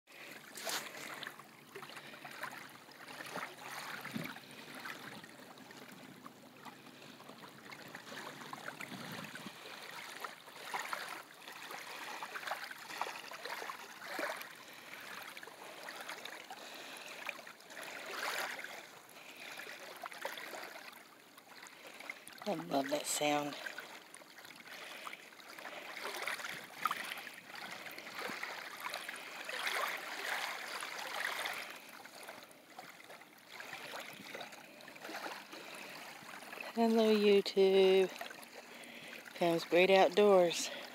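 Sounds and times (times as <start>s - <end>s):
water lapping on sandy shore: 0.1s - 40.9s.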